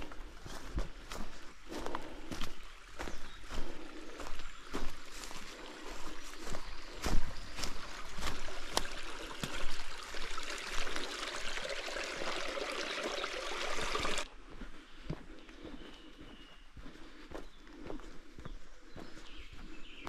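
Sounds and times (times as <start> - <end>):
stream water rushing: 7.8 - 14.3.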